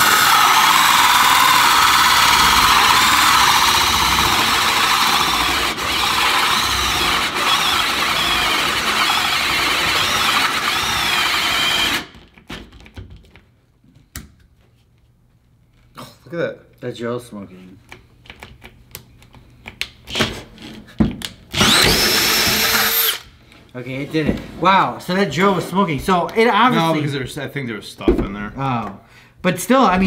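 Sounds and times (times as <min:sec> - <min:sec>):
drill squealing under load: 0:00.0 - 0:12.1, 0:21.6 - 0:23.2.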